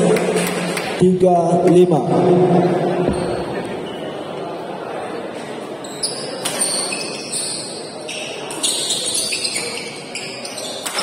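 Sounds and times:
murmur of spectators: 0.0s - 11.0s
shoes squeaking on court: 3.1s - 4.2s, 5.8s - 11.0s.

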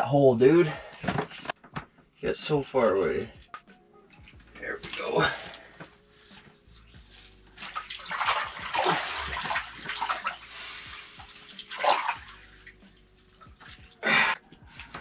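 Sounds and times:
water sloshing and splashing: 4.2s - 15.0s.

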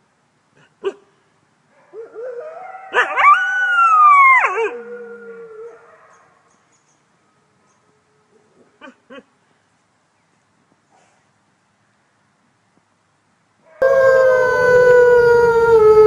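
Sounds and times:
wolf howling: 13.8s - 16.0s.

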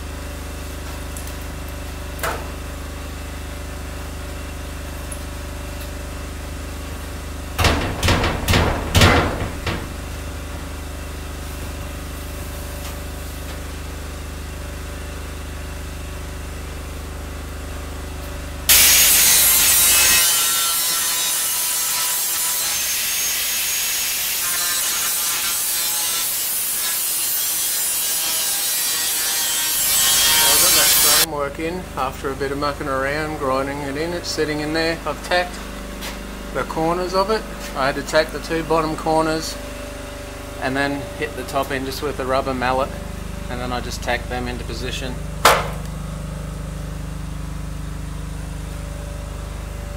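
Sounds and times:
generator humming: 0.0s - 19.2s, 30.7s - 49.9s
metal knocks and clatter: 7.6s - 10.7s
angle grinder grinding steel: 18.7s - 31.3s.

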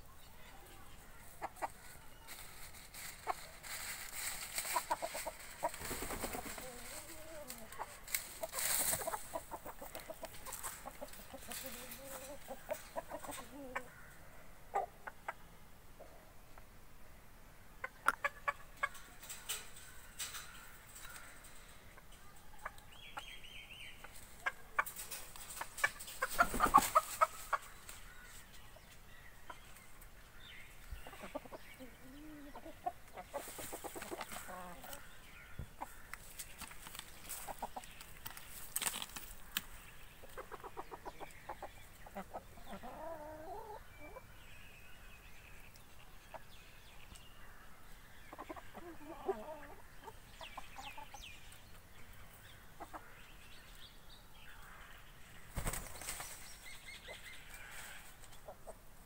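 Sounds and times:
chickens clucking: 0.1s - 16.8s, 17.7s - 54.0s, 54.6s - 59.0s.

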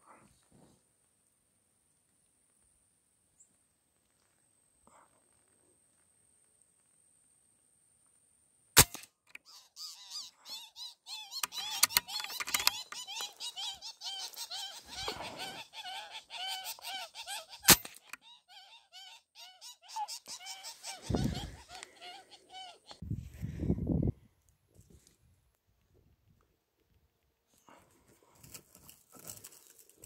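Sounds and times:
rifle shot: 8.8s - 9.1s
repeated bird cries: 9.3s - 23.0s.

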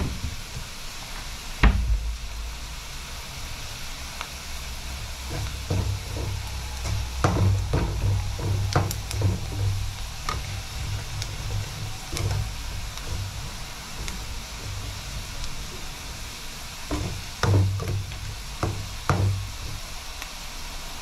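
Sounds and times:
onions sizzling in a pan: 0.0s - 21.0s
spoon scraping and knocking pan: 5.3s - 15.0s, 16.9s - 19.7s.

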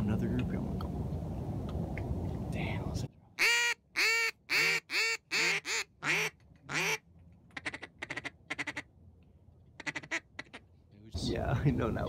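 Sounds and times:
duck call clicking notes: 3.4s - 8.8s, 9.8s - 10.6s
duck call quacks: 3.4s - 8.9s, 9.8s - 10.6s.

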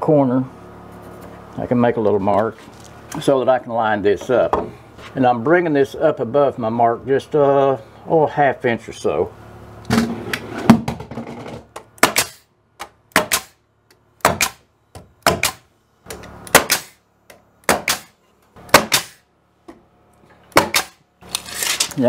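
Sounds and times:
pneumatic nailer firing: 9.9s - 13.6s, 14.2s - 17.0s, 17.6s - 19.2s, 20.5s - 21.9s.

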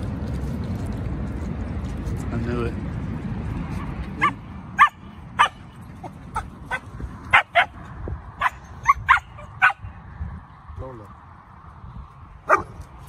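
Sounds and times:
dogs barking and yipping: 3.7s - 10.0s, 12.4s - 12.9s.

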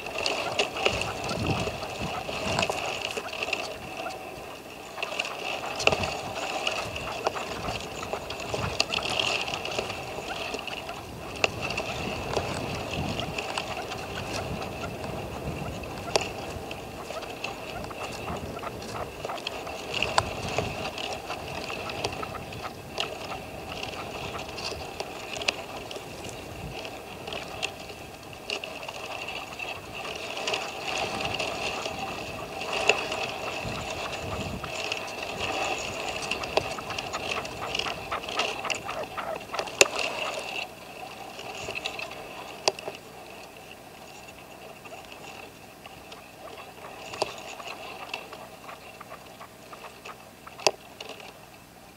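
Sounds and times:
partridge calling: 0.1s - 28.0s, 28.6s - 40.6s.

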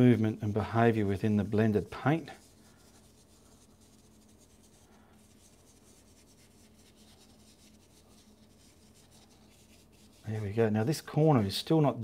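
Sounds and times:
paintbrush scratching on canvas: 0.0s - 11.4s
low steady hum: 0.0s - 12.0s.

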